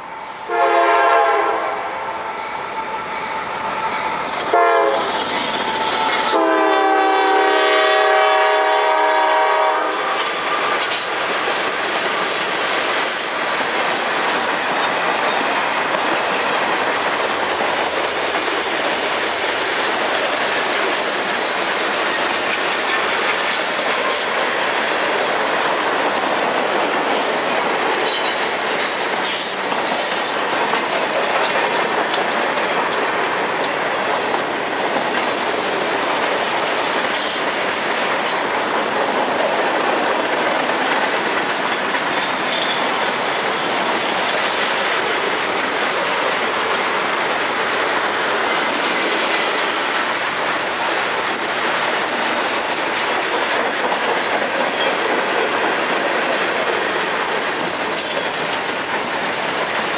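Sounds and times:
locomotive air horn blasts: 0:00.5 - 0:01.9, 0:04.5 - 0:05.1, 0:06.0 - 0:10.8.

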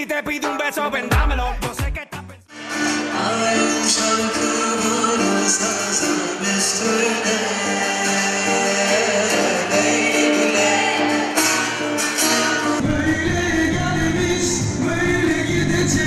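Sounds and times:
band with heavy bass: 0:01.1 - 0:04.7, 0:12.6 - 0:16.0
acoustic band with singing: 0:02.5 - 0:16.0
classical guitar strummed: 0:02.5 - 0:16.0.

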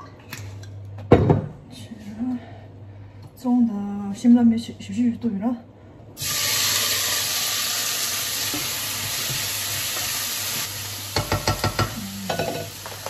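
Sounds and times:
vegetables sizzling in pot: 0:06.2 - 0:13.0.

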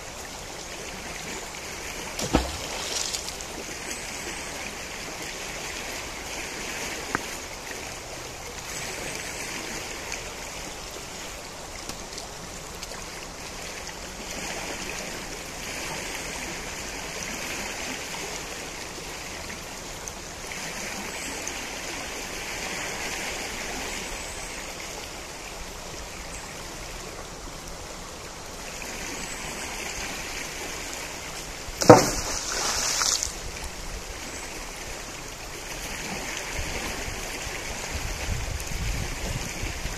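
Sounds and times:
river flowing: 0:00.0 - 0:39.9
sudden loud knock: 0:31.8 - 0:32.4.

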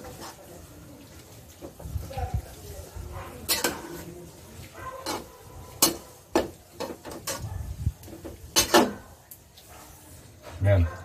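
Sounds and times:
metal spatula scraping a wok: 0:00.0 - 0:01.8, 0:03.3 - 0:09.0.

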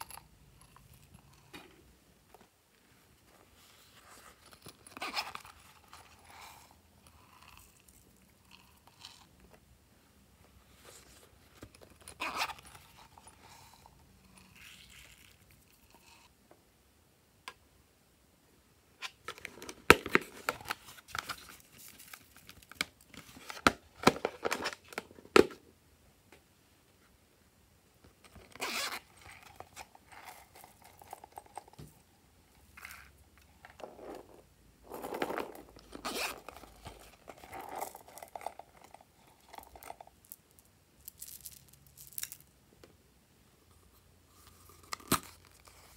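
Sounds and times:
beads shaken out rattling: 0:34.8 - 0:42.5.

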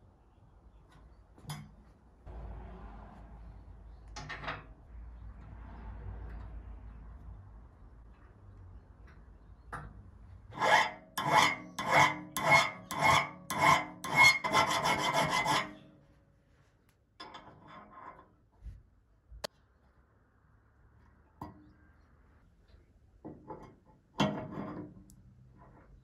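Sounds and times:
hand file on metal: 0:10.5 - 0:15.8.

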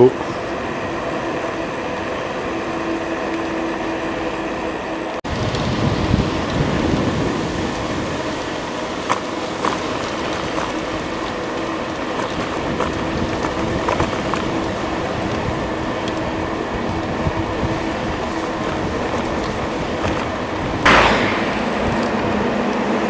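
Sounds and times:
tyres rolling: 0:00.0 - 0:23.0
wind rushing over microphone: 0:05.2 - 0:11.2, 0:12.0 - 0:23.0
steady hum: 0:20.6 - 0:23.0.

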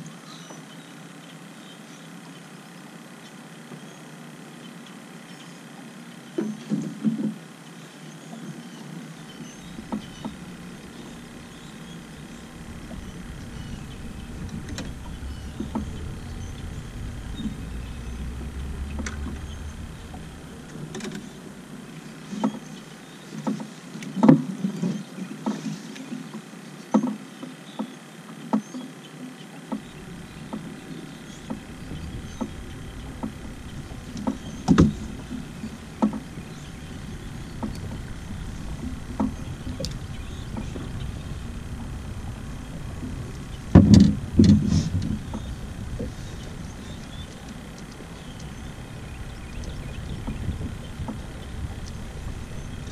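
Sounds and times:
fishing tackle knocking on boat: 0:31.4 - 0:36.4.

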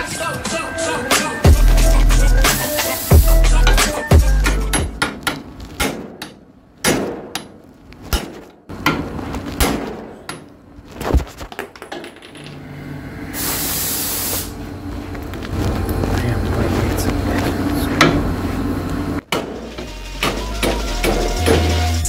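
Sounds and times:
spray hiss: 0:02.1 - 0:04.0, 0:13.4 - 0:14.6.

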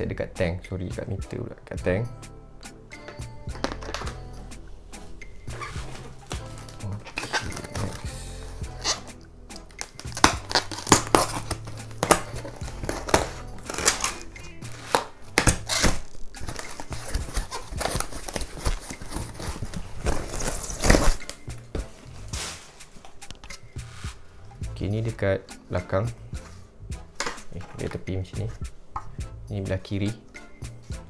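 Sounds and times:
background music: 0:00.0 - 0:31.0
foam wrap crinkling: 0:05.5 - 0:24.1.

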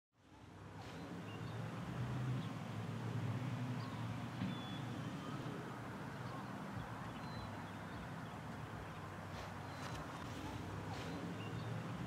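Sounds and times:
faint bird chirps: 0:03.8 - 0:12.0.

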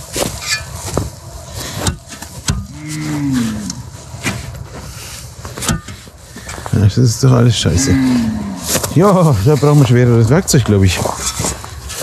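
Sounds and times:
sharp knocks and crunches: 0:00.0 - 0:06.8
cow mooing: 0:02.6 - 0:04.0, 0:07.6 - 0:09.0.

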